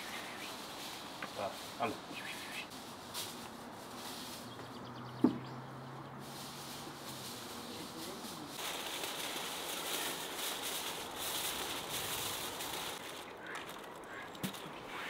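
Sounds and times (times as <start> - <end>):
aluminium foil crumpling: 6.6 - 14.8.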